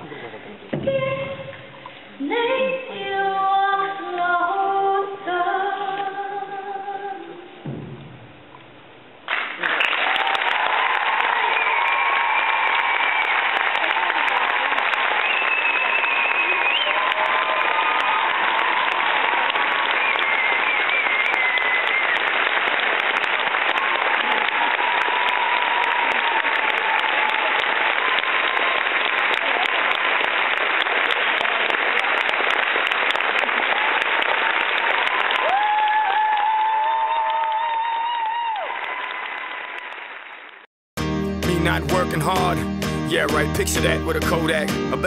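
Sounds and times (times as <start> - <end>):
audience applauding: 9.2 - 40.7
people cheering: 9.6 - 40.2.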